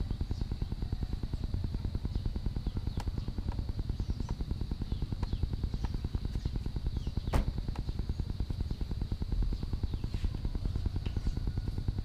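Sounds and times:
high insect drone: 0.0s - 12.0s
small engine running: 0.0s - 12.0s
bird chirps: 1.8s - 11.0s.

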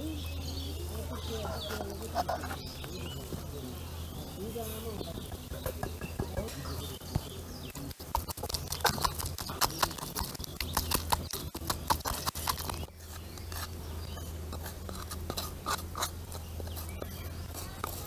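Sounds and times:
spoon scraping pot: 1.3s - 3.5s, 7.7s - 18.0s
pestle pounding in clay pot: 5.1s - 18.0s.

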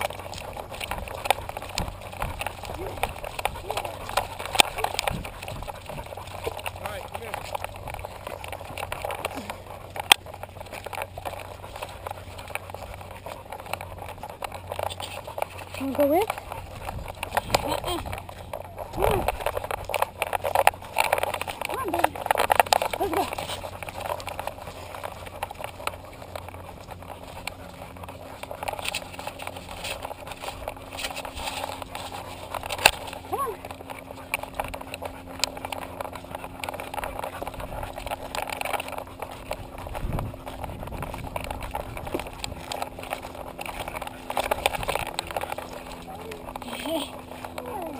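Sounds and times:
paws scraping dirt trail: 0.0s - 47.9s.

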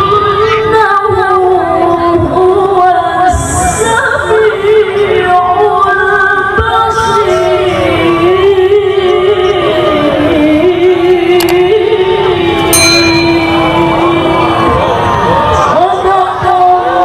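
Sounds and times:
woman reciting melodically: 0.0s - 12.6s.

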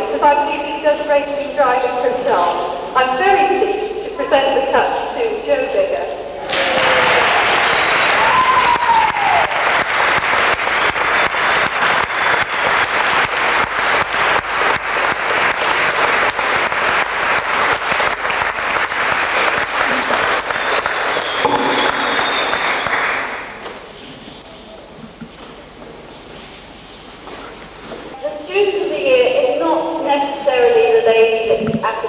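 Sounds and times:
audience applauding: 6.4s - 23.9s.

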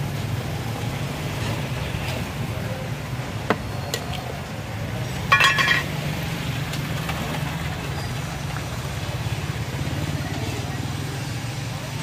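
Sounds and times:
traffic hum: 0.0s - 12.0s
metal lid clattering: 5.3s - 5.9s.

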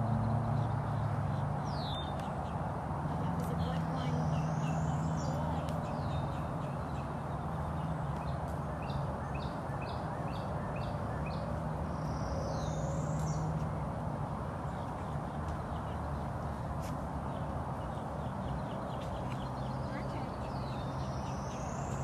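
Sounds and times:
birds calling: 14.6s - 22.0s.

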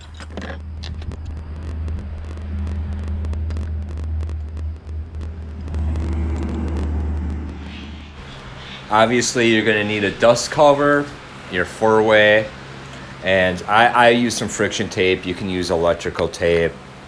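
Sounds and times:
low rumble: 0.0s - 11.5s.

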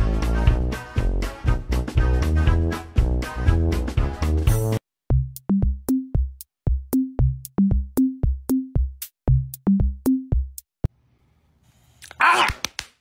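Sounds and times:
electronic tune with drum beat: 2.0s - 10.7s.

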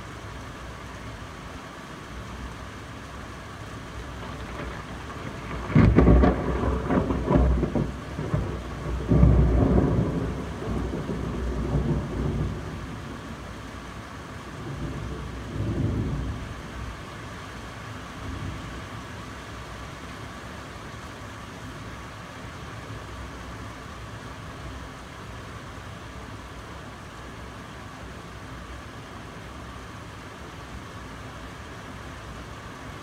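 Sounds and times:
steady rain: 0.0s - 33.0s
thunder clap and rumbles: 4.2s - 13.2s.

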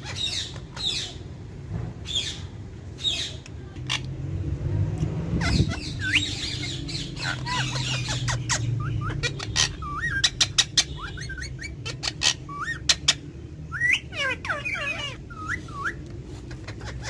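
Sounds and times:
parakeets calling: 0.0s - 17.0s.

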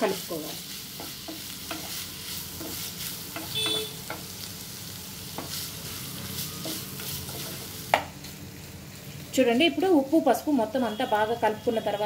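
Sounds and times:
food sizzling: 0.0s - 12.0s
spatula scraping a frying pan: 0.1s - 4.4s.

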